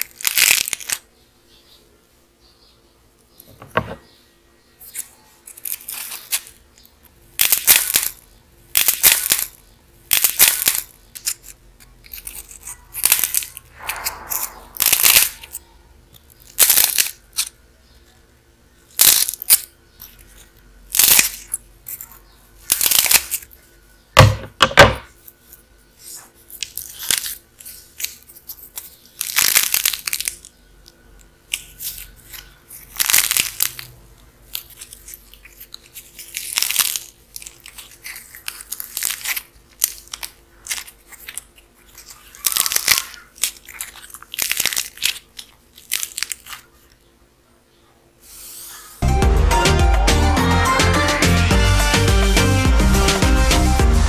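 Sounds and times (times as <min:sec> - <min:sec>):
clay crackling and tearing: 0:00.0 - 0:01.1, 0:04.8 - 0:17.6, 0:18.9 - 0:23.6, 0:25.4 - 0:33.9, 0:34.5 - 0:47.0
scissors cutting clay: 0:11.2 - 0:13.6.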